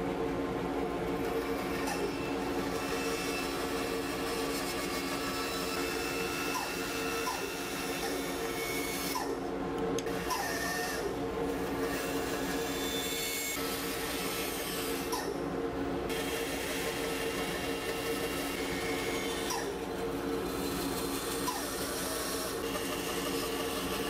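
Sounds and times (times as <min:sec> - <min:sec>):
bandsaw humming: 0:16.1 - 0:24.0.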